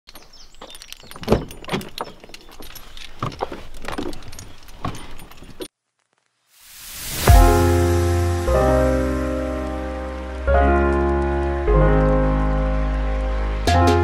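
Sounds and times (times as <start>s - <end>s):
keys jangling: 0.1s - 5.7s
hiss: 6.6s - 9.3s.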